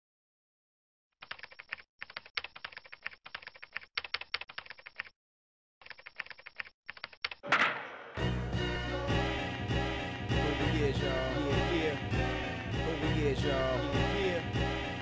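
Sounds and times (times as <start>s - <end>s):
fast typing on keyboard: 1.2s - 5.1s, 5.8s - 7.4s
loud sharp hit: 7.4s - 8.4s
hip hop beat: 7.8s - 15.0s.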